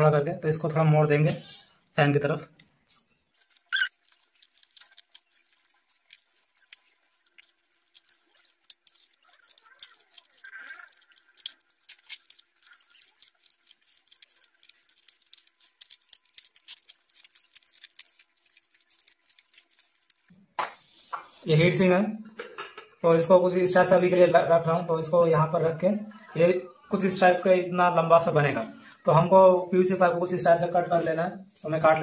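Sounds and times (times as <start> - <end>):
metal sheet clicking and crinkling: 2.9 - 20.3.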